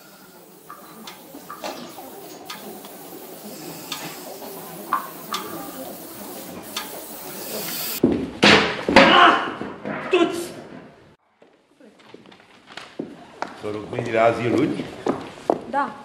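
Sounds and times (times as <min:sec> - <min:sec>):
steady hiss: 0:00.0 - 0:08.0.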